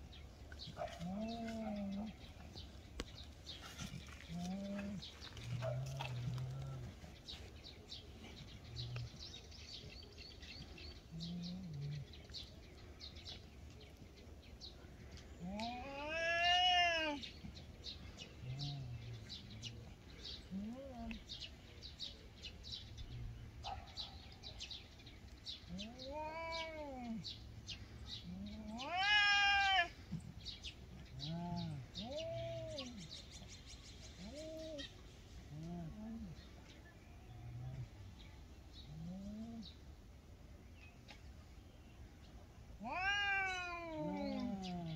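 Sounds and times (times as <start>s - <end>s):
small birds chirping: 0.0s - 44.9s
cat yowling: 15.6s - 17.2s, 25.8s - 27.2s, 28.7s - 29.9s, 42.8s - 44.9s
cat growling: 42.8s - 44.9s.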